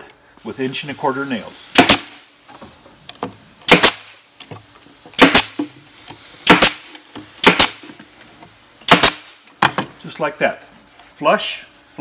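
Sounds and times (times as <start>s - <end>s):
nail gun firing: 1.7s - 2.2s, 3.6s - 4.2s, 5.2s - 5.7s, 6.4s - 7.9s, 8.8s - 9.4s.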